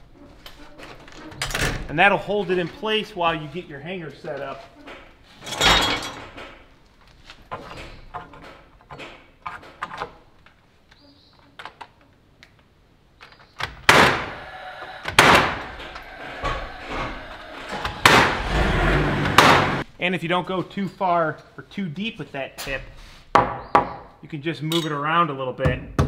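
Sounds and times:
knocks and clicks of handling wood: 6.3s - 14.1s
impact driver driving screws: 13.9s - 19.8s.

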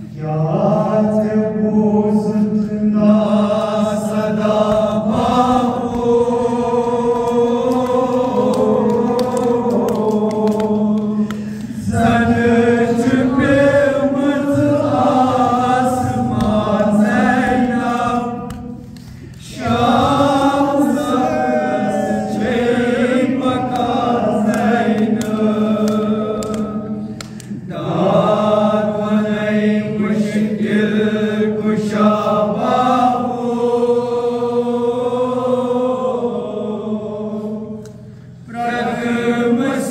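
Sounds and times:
man chanting a lament: 0.0s - 4.6s.

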